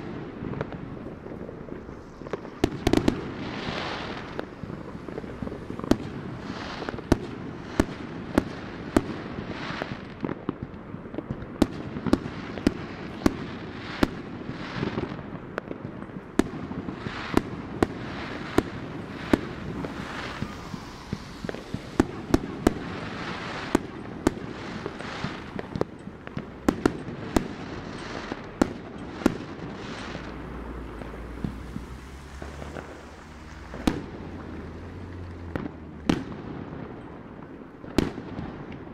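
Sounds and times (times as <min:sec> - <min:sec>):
fireworks bangs and pops: 0:00.0 - 0:38.9
fireworks crackling: 0:00.0 - 0:38.9
low rumble: 0:17.6 - 0:26.7.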